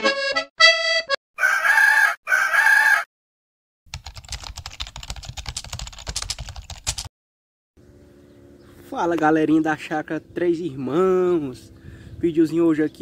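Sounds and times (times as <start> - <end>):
accordion music: 0.0 - 1.2
rooster crowing: 1.4 - 3.1.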